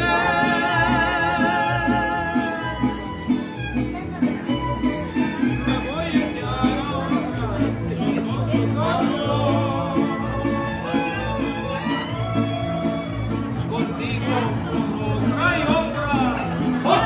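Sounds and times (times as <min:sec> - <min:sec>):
mariachi band playing: 0:00.0 - 0:17.0.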